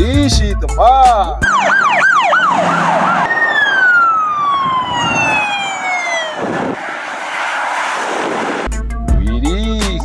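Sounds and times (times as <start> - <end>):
police siren winding down: 1.4 - 8.7.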